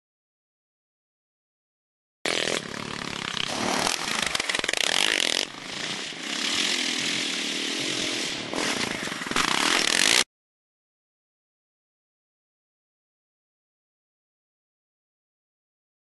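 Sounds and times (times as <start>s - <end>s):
motocross engine revving: 2.3s - 10.2s.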